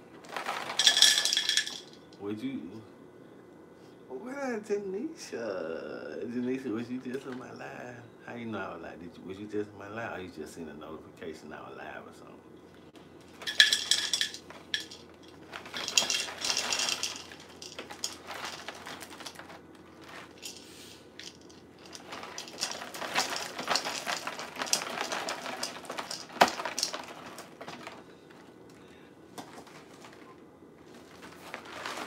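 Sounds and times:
cereal rattling into glass bowl: 0.3 - 2.1, 13.4 - 28.0.

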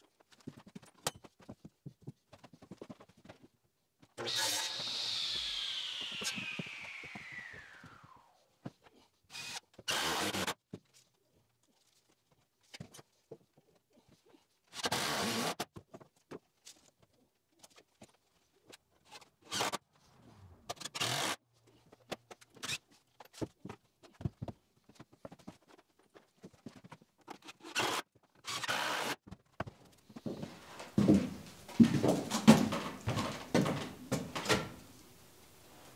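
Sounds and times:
cordless drill driving screws: 4.2 - 8.2, 9.3 - 10.6, 14.8 - 15.6, 20.7 - 21.4, 27.6 - 29.2.

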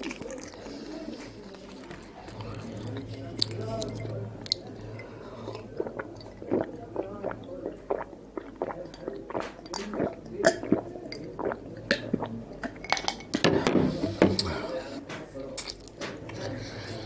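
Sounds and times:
man gulping drink: 5.5 - 12.9.

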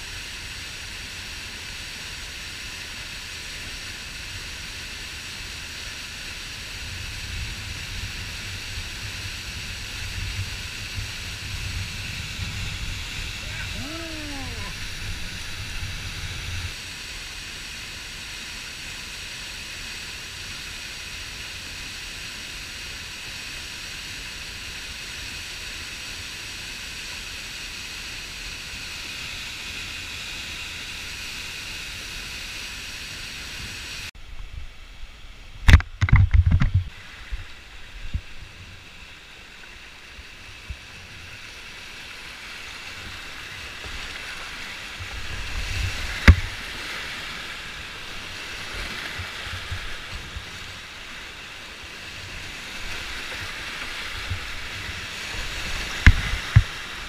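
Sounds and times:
waterfall rushing: 7.6 - 25.6, 36.9 - 57.0.

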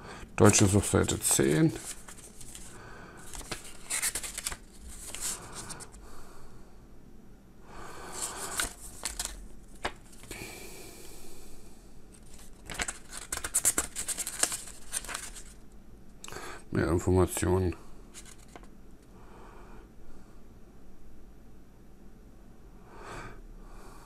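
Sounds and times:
paper pages turning: 0.4 - 6.0, 8.1 - 10.4, 12.1 - 15.6, 18.1 - 18.7.

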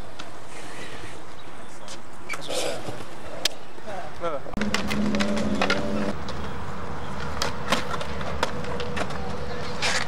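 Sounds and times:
skateboard wheels rumbling: 4.6 - 10.0.

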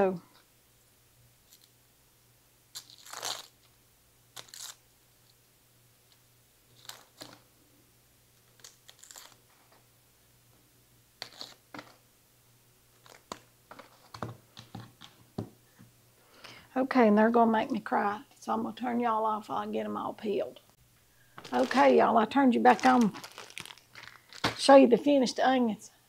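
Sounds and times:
onion skin crackling and tearing: 2.7 - 3.7, 4.3 - 4.8, 6.8 - 7.4, 8.5 - 9.4, 22.7 - 24.6.

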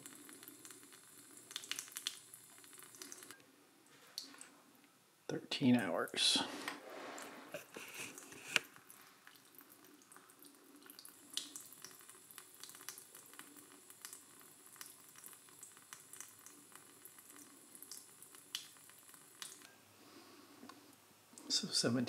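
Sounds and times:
water dripping onto knife blade: 0.1 - 3.4, 9.3 - 19.7.

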